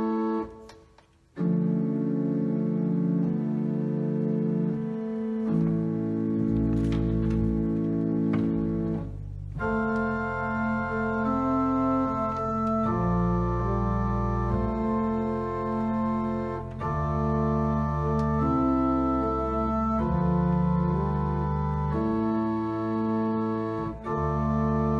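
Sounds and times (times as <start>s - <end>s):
pipe organ chords: 0.0s - 24.9s.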